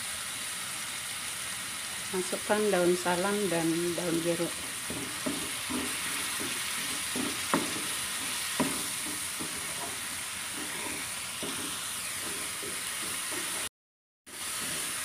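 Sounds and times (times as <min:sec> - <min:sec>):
spice paste sizzling in oil: 0:00.0 - 0:13.7, 0:14.3 - 0:15.0
spatula scraping frying pan: 0:03.5 - 0:13.7, 0:14.3 - 0:15.0
sharp knocks: 0:04.6 - 0:10.0.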